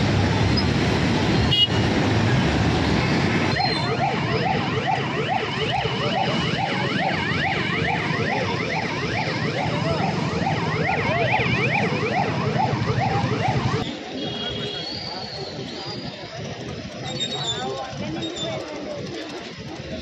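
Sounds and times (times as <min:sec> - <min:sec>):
siren yelping: 0:03.5 - 0:13.8.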